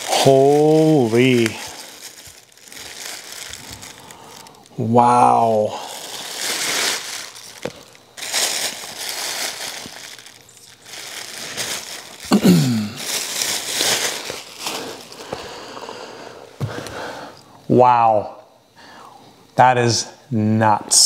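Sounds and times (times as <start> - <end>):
plastic bag crinkling: 0.0 - 15.8.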